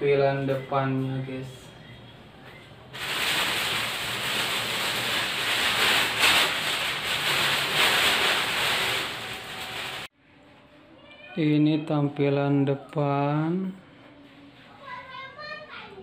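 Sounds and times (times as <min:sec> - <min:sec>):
plastic sheet rustling and crinkling: 0:02.9 - 0:10.1.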